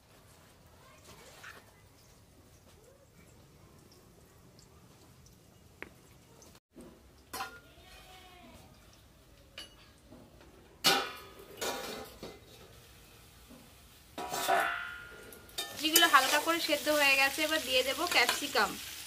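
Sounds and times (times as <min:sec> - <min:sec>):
metal lid clanking on wok: 0:14.2 - 0:16.4.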